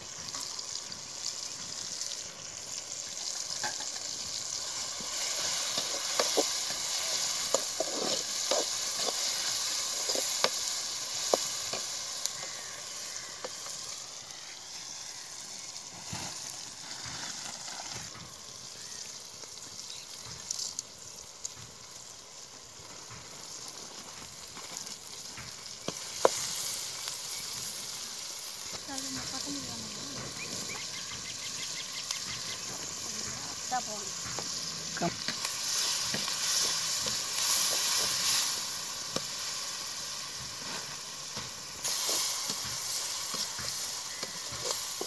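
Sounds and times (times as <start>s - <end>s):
onions sizzling in hot oil: 0.0s - 45.0s
ladle scraping pan: 4.9s - 12.5s.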